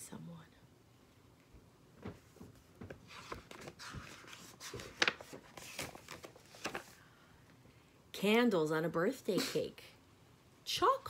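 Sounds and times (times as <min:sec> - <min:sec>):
paper pages rustling and crackling: 0:02.0 - 0:07.0.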